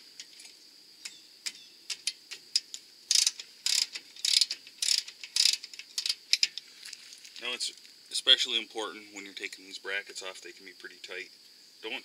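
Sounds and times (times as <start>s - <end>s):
socket ratchet clicking: 1.9s - 6.5s.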